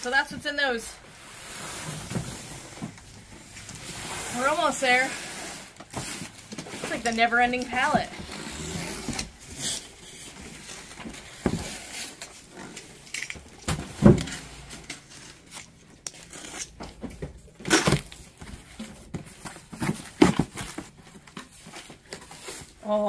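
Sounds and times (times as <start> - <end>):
cardboard and plastic rustling: 0.1 - 23.0
boxes knocking and thumping: 5.8 - 12.0, 13.4 - 14.9, 16.7 - 22.8.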